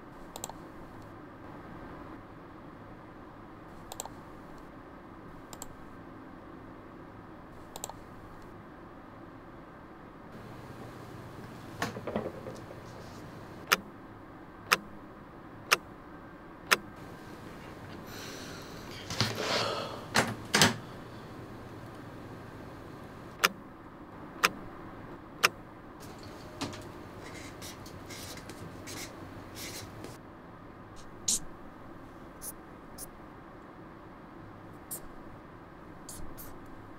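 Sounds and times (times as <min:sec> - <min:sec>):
rustling at desk: 0:10.4 - 0:13.6, 0:18.8 - 0:19.5, 0:26.0 - 0:30.2
marker pen scratching on paper: 0:27.2 - 0:30.2, 0:31.0 - 0:31.5, 0:36.1 - 0:36.6.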